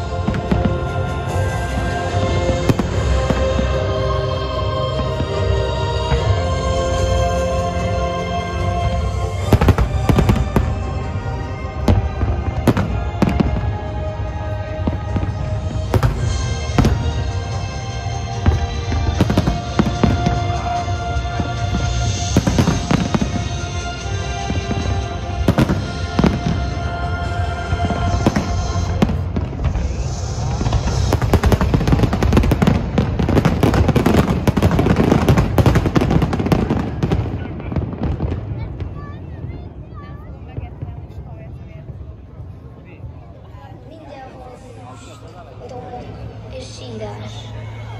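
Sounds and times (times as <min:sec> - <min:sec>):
music: 0:00.0 - 0:42.5, 0:43.4 - 0:47.9
fireworks bursting: 0:14.6 - 0:39.8.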